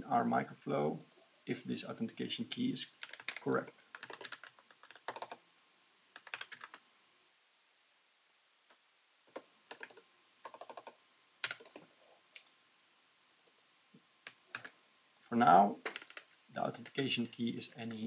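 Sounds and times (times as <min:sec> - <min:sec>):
keyboard typing: 0:03.0 - 0:05.4, 0:06.1 - 0:06.8, 0:09.3 - 0:11.8, 0:13.3 - 0:13.6, 0:14.5 - 0:14.7, 0:15.9 - 0:17.0.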